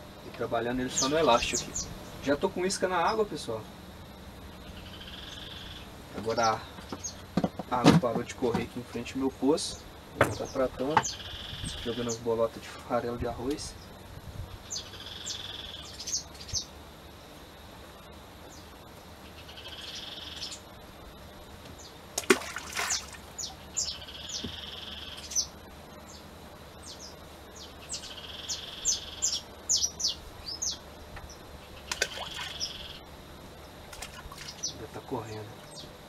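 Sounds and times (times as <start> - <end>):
birds chirping: 0.0 - 36.0
groundbait splashing into river: 22.2 - 23.5, 31.9 - 32.7.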